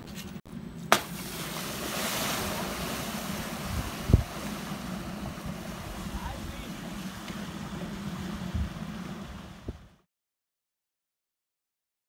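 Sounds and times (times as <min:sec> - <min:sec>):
wakeboard spray hissing: 0:00.9 - 0:09.9
wind buffeting microphone: 0:01.6 - 0:10.0.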